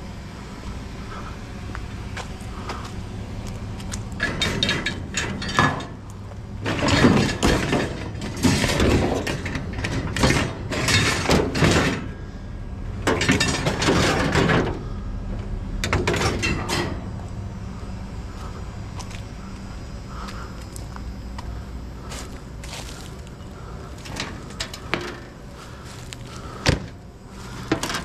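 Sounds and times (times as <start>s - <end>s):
steady low hum: 0.0s - 28.0s
scrap metal clattering and scraping: 3.8s - 12.3s, 13.0s - 15.0s, 15.8s - 17.2s, 22.0s - 28.0s.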